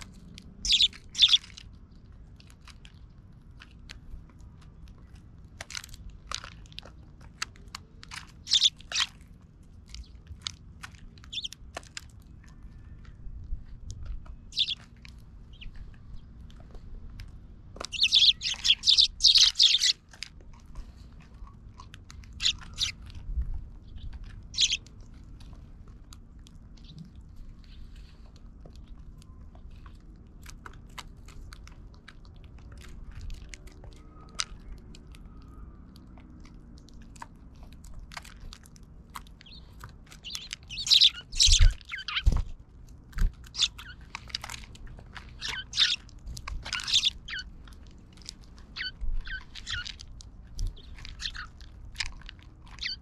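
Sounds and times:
sparrows chirping: 0.0 - 1.8, 7.8 - 9.3, 11.1 - 11.6, 14.3 - 16.8, 17.7 - 20.1, 22.2 - 25.0, 39.2 - 42.5, 43.2 - 44.6, 45.2 - 47.6, 48.6 - 51.7, 52.7 - 53.0
sparrows pecking seed: 0.0 - 53.0.

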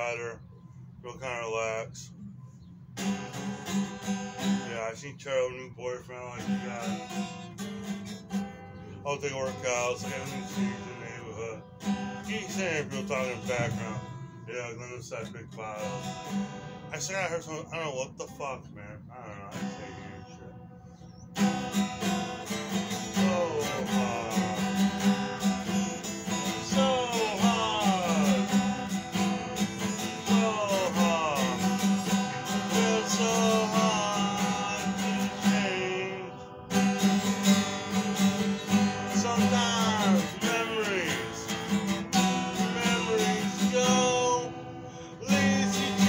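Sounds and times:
acoustic guitar strumming: 0.0 - 46.0
man singing: 4.4 - 7.1, 9.0 - 16.2, 16.9 - 20.5, 22.7 - 36.4, 37.8 - 46.0.

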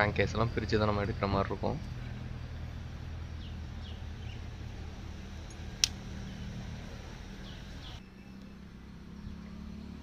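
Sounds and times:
sharp click: 5.5 - 6.0.

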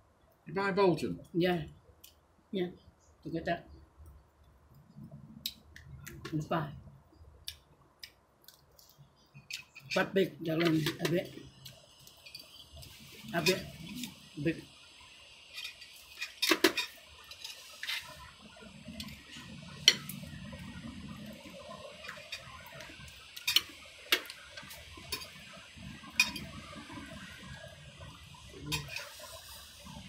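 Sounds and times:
cutlery clinking on metal platter: 15.5 - 18.1, 23.4 - 24.3, 25.1 - 25.4, 26.2 - 26.5, 28.7 - 29.2.

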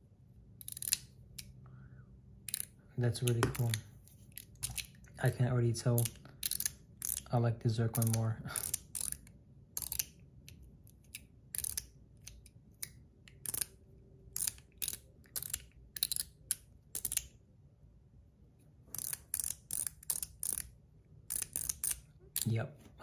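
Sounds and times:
metal fidget toy clicking: 0.6 - 1.5, 2.5 - 3.8, 6.0 - 7.3, 8.0 - 10.2, 11.0 - 13.7, 14.4 - 17.3, 18.9 - 20.7, 21.3 - 22.5.

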